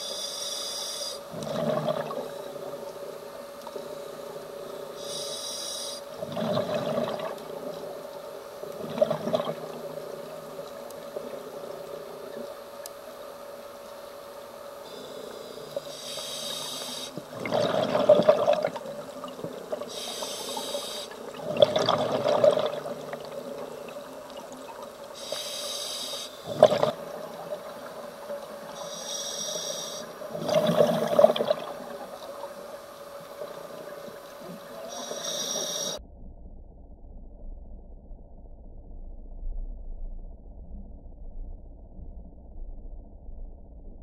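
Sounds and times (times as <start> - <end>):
regulator hiss on inhale: 0.0 - 1.4, 2.3 - 6.2, 14.8 - 17.4, 19.8 - 21.4, 25.0 - 26.6, 28.6 - 30.3, 34.8 - 36.0
faint steady hum: 0.0 - 44.0
bubbling on exhale: 1.3 - 2.4, 6.2 - 7.4, 17.2 - 18.8, 21.2 - 23.7, 26.4 - 27.0.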